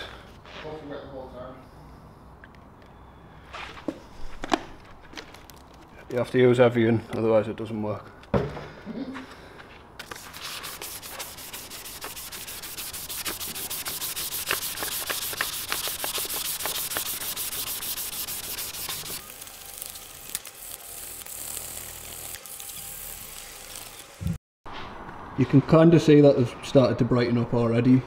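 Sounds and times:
sandpaper rasping on plastic: 10.0s - 19.2s.

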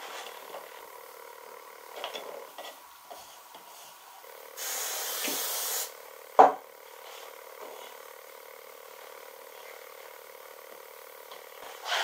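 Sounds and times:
steady hiss: 0.0s - 6.2s.

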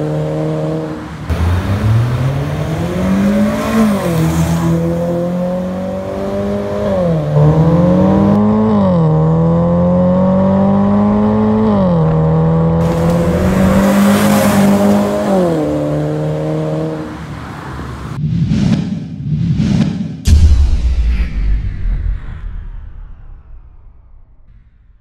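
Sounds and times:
car passing by: 0.6s - 5.8s, 12.8s - 18.2s
car exhaust accelerating hard: 7.4s - 16.6s
whooshing sound effect: 12.8s - 15.5s, 18.2s - 25.0s.

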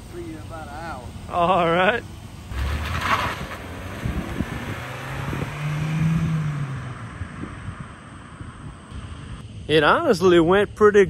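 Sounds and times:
car engine accelerating: 2.4s - 9.0s.

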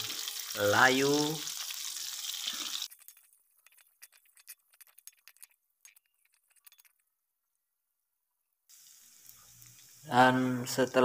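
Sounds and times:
shallots sizzling in oil: 0.0s - 3.0s, 8.7s - 11.0s.

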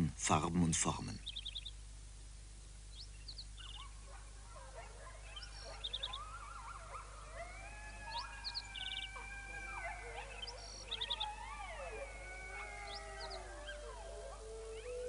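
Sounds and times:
animal cries gliding in pitch: 5.5s - 15.0s.

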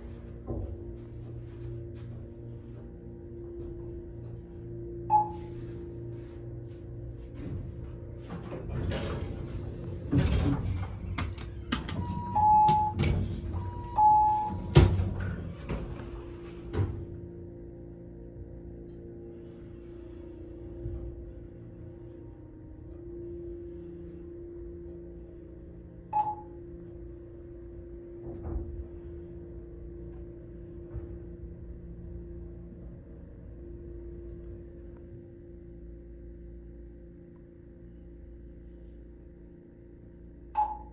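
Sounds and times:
elevator hum: 0.0s - 40.9s
elevator doors sliding open: 7.3s - 17.1s.

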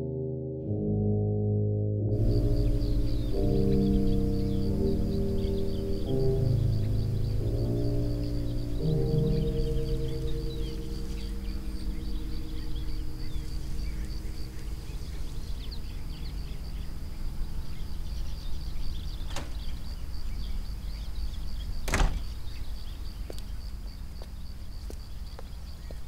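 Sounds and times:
sustained orchestral score notes: 0.0s - 19.0s
steady low rumble: 2.1s - 24.6s
door thud: 19.2s - 19.8s, 21.8s - 22.4s.

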